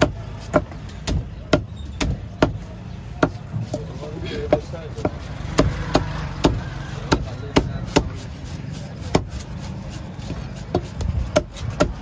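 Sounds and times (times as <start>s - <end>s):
knife chopping on wooden block: 3.2s - 3.9s, 4.5s - 8.2s, 9.0s - 9.5s, 10.2s - 12.0s.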